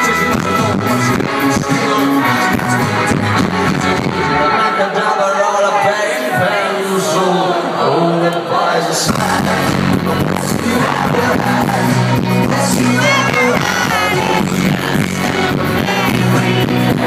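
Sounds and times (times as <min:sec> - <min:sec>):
rock band playing live: 0:00.0 - 0:05.4, 0:09.1 - 0:17.0.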